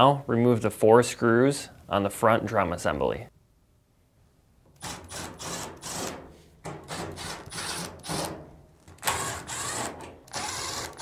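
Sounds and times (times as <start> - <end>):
power drill whirring: 4.8 - 6.2, 6.9 - 8.3, 9.0 - 11.0.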